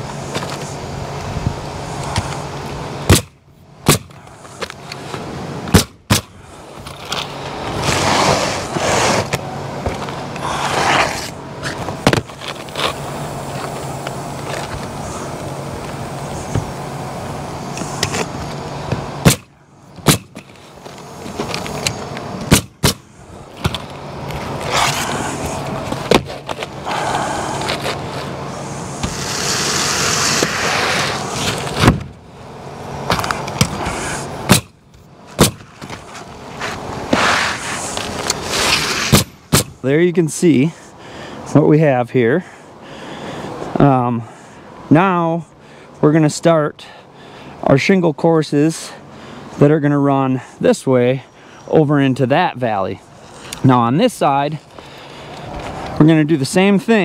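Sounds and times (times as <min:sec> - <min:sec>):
roofing nailer firing: 0:03.1 - 0:04.2, 0:05.7 - 0:06.4, 0:19.2 - 0:20.5, 0:22.4 - 0:23.8, 0:29.0 - 0:32.2, 0:33.1 - 0:34.8, 0:35.4 - 0:35.8, 0:38.5 - 0:39.8
shingles scraping: 0:03.8 - 0:16.8, 0:17.7 - 0:32.2, 0:33.0 - 0:39.7.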